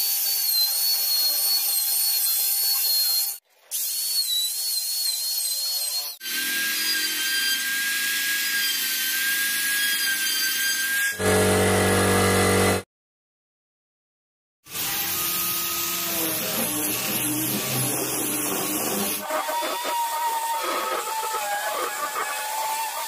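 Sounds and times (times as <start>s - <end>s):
router whining cutting wood: 11.0s - 12.8s, 14.7s - 23.0s
low buzz: 11.2s - 12.8s
orbital sander running: 11.2s - 12.8s.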